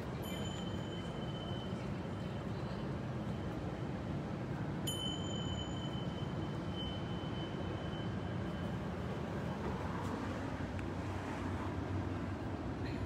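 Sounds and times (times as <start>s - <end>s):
faint high ringing tone: 0.0s - 4.2s, 4.8s - 10.2s.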